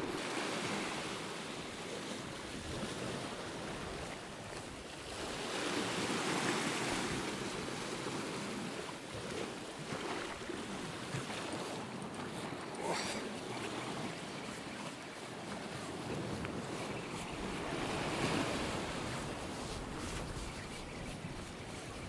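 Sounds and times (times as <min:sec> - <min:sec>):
waves washing on rocks: 0:00.0 - 0:21.7.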